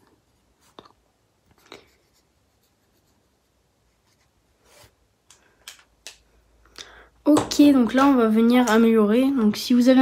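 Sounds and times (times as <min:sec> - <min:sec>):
marker scratching on paper: 0:01.6 - 0:05.0.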